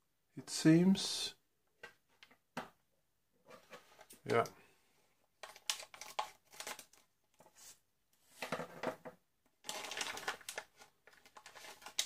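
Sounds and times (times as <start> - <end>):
plastic bag crinkling: 9.6 - 12.0.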